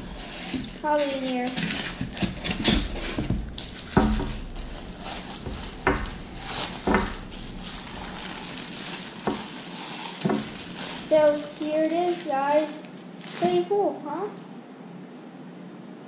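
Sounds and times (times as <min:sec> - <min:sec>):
sharp handling knocks: 0:00.0 - 0:09.6, 0:10.2 - 0:11.3
crinkly wrapping rustling: 0:00.0 - 0:14.2.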